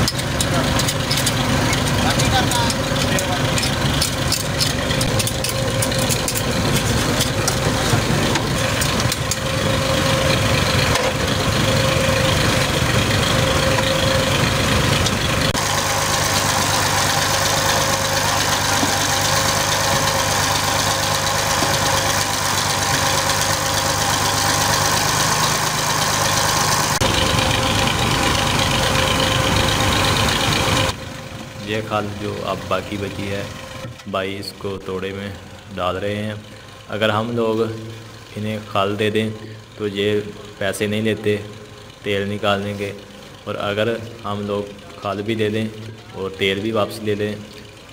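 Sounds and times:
oil press mechanical hum: 0:00.0 - 0:34.2
tractor diesel engine running: 0:00.0 - 0:47.9.

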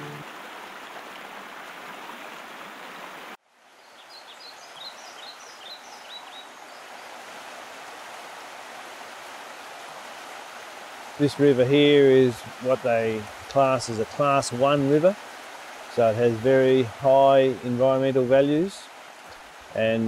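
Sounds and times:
river water rushing over rapids: 0:00.0 - 0:19.8
soft running water: 0:00.0 - 0:20.0
bird chirping: 0:03.8 - 0:06.8.

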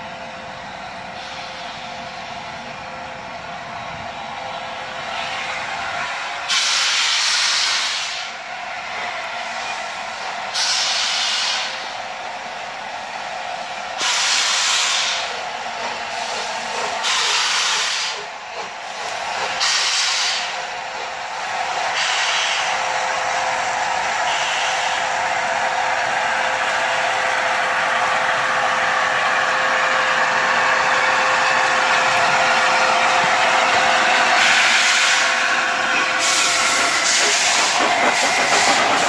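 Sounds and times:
steam locomotive exhaust blasts: 0:00.0 - 0:39.0
steam venting: 0:06.5 - 0:08.3, 0:14.0 - 0:21.1, 0:29.5 - 0:39.0.

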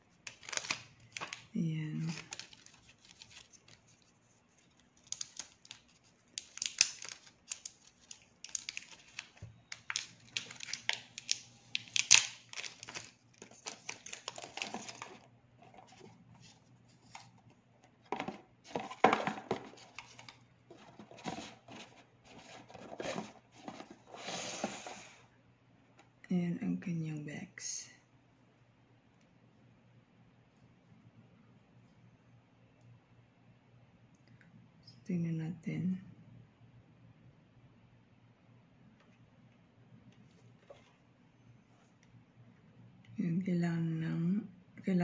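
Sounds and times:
plastic wrap crinkling and tearing: 0:00.2 - 0:15.2.

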